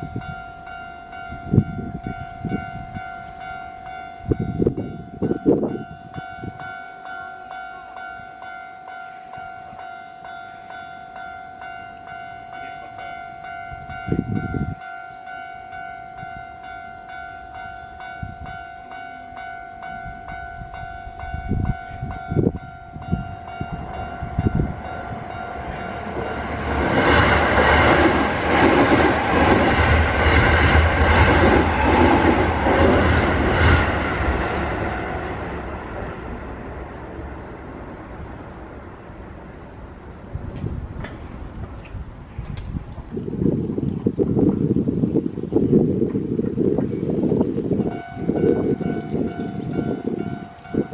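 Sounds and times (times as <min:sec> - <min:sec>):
level crossing warning bell: 0:00.0 - 0:28.4, 0:47.7 - 0:50.9
electric train passing: 0:00.0 - 0:50.9.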